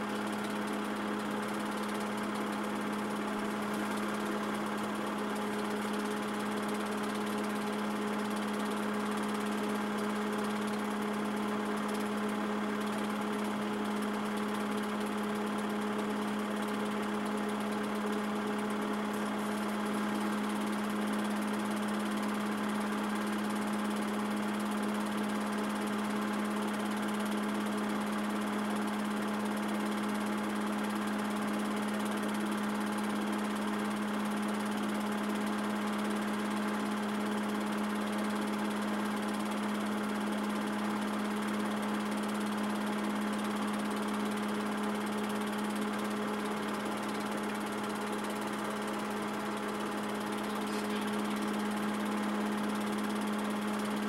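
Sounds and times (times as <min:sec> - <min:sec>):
machine hum: 0:48.1 - 0:53.3.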